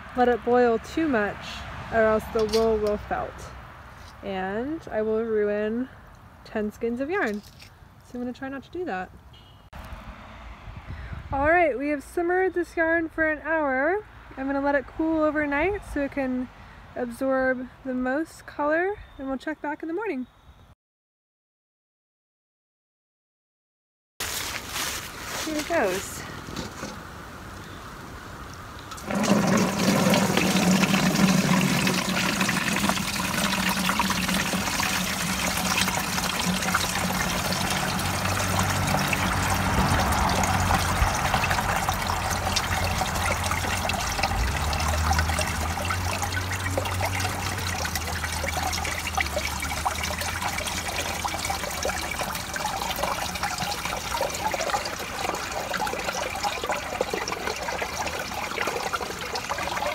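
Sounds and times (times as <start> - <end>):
liquid pouring into bucket: 28.9 - 59.9.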